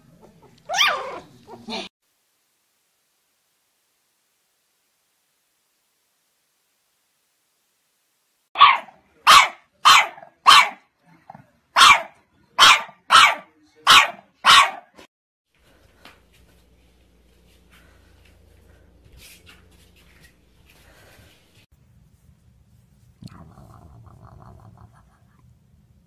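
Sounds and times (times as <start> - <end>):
puppy barking: 0.2 - 1.8, 8.6 - 10.9, 11.8 - 15.1.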